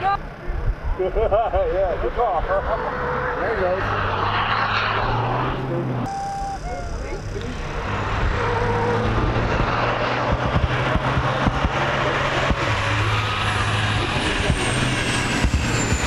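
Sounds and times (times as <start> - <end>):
thin high whine: 0.9 - 8.9
truck diesel engine running hard: 5.6 - 16.0.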